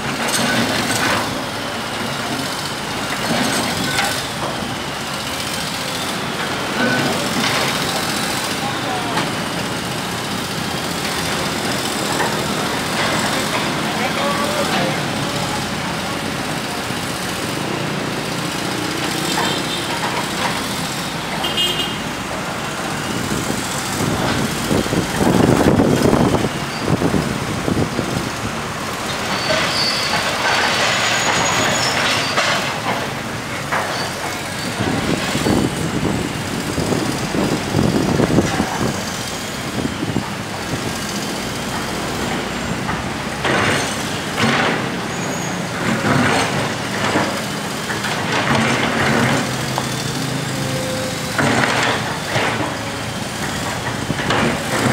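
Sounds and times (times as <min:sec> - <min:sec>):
excavator running: 0:00.0 - 0:54.9
street traffic passing: 0:00.0 - 0:54.9.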